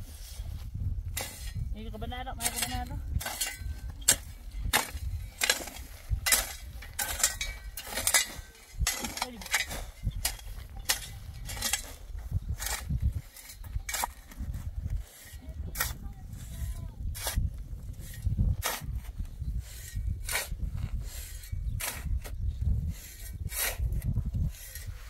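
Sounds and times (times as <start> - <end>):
wind rumble on microphone: 0.0 - 25.0
hand tool striking and scraping: 1.1 - 1.7, 2.3 - 25.0.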